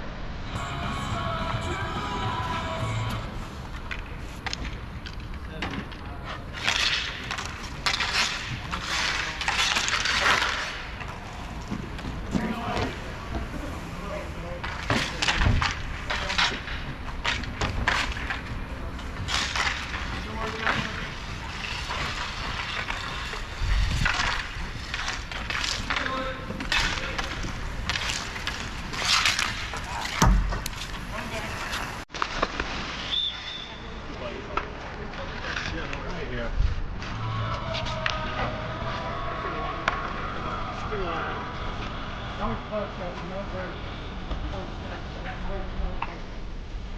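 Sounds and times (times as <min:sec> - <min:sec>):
skate wheels scraping: 0:00.2 - 0:46.9
hockey sticks and puck clacking: 0:01.0 - 0:33.6, 0:34.5 - 0:36.3, 0:36.9 - 0:39.1, 0:39.8 - 0:42.0
thud: 0:30.1 - 0:30.9.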